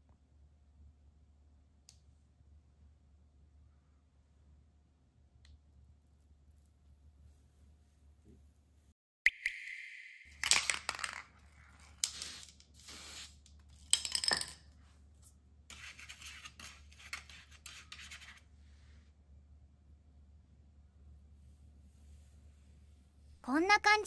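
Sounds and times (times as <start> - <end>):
click: 1.8 - 2.0, 5.4 - 5.6
toothbrush scratching rubber: 15.7 - 18.5.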